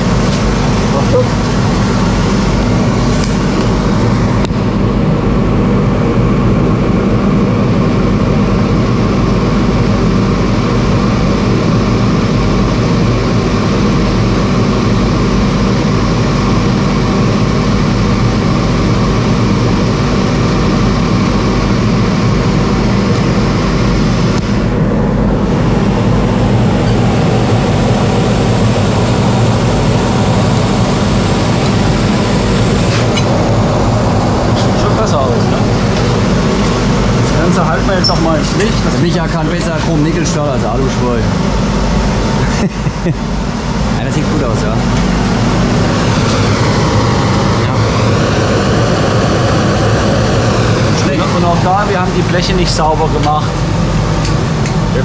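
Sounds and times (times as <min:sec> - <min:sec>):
low machine hum: 0:00.0 - 0:55.0
welding arc hissing: 0:25.6 - 0:38.9.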